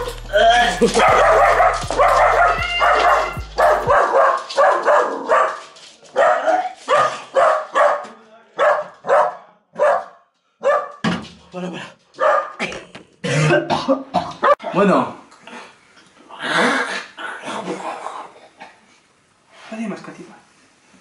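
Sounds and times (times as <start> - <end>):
man retching and gagging: 0.0 - 3.9, 12.6 - 14.5.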